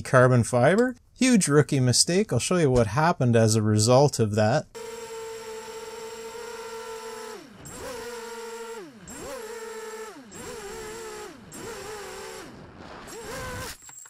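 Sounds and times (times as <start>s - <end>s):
quadcopter motors whining: 4.8s - 13.8s.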